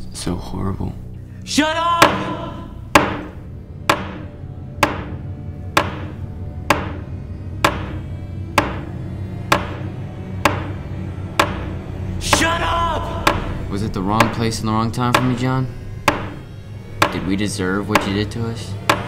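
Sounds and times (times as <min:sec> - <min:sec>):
low sustained drone: 0:00.0 - 0:19.0
echoing percussion hits: 0:02.0 - 0:19.0.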